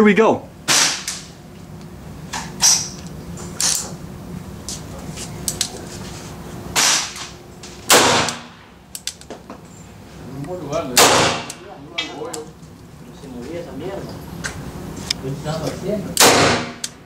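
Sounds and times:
revolver gunshots: 0.6s - 1.3s, 6.7s - 7.3s, 7.9s - 8.7s, 10.9s - 11.6s, 16.2s - 16.9s.

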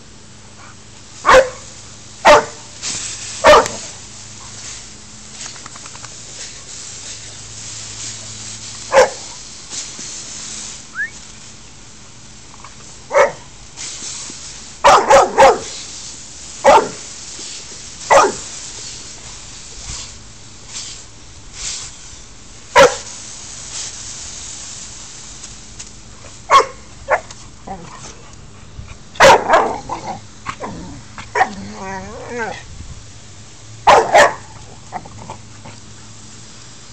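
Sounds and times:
dog barking: 1.2s - 2.6s, 3.4s - 3.8s, 8.9s - 9.2s, 13.1s - 13.4s, 14.8s - 15.7s, 16.6s - 17.0s, 18.1s - 18.4s, 22.8s - 23.1s, 26.5s - 27.2s, 29.2s - 29.8s, 33.8s - 34.5s.

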